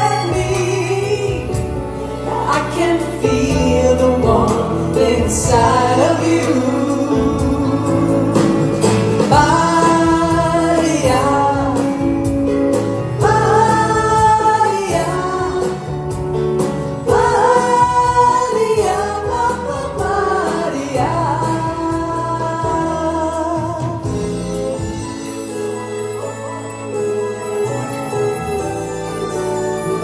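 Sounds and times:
woman singing with vibrato: 0.0 - 12.2, 13.2 - 16.2, 17.0 - 24.3
band accompaniment: 0.0 - 30.0.

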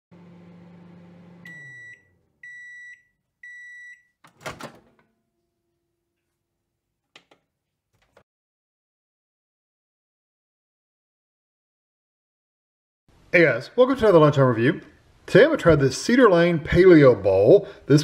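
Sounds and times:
microwave oven humming: 0.1 - 2.6
high microwave beeps: 1.4 - 4.2.

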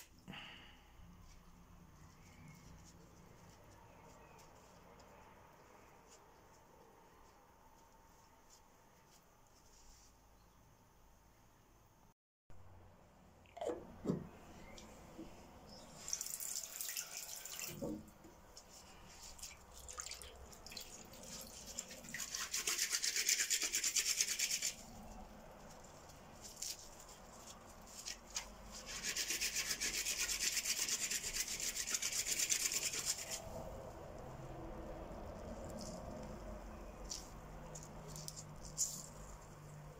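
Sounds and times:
soft rustling: 1.1 - 10.5
wet hands rubbing together: 18.5 - 33.6.

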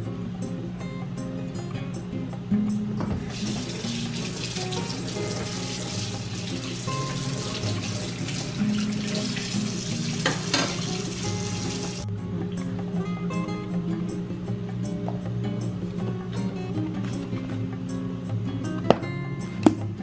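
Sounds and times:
background music: 0.0 - 20.0
water running from a tap: 3.3 - 12.0.

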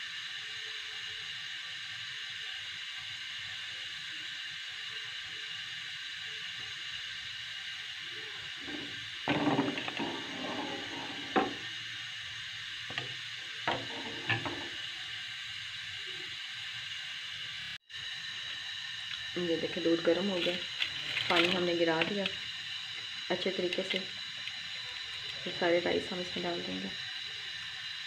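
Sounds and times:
milk heating hiss: 0.0 - 28.0
metal ladle scraping a pan: 8.6 - 11.7, 13.7 - 14.8.

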